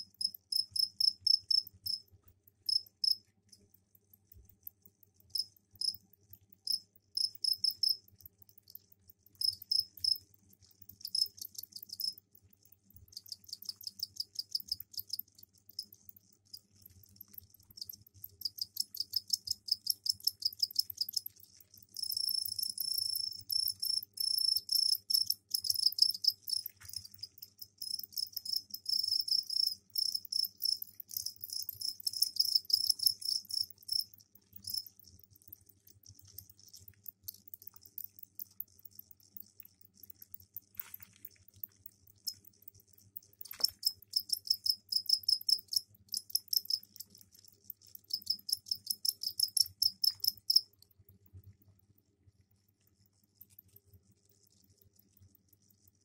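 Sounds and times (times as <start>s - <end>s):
crickets chirping trills: 0.0s - 2.1s, 2.7s - 3.2s, 6.6s - 41.0s, 41.6s - 50.8s.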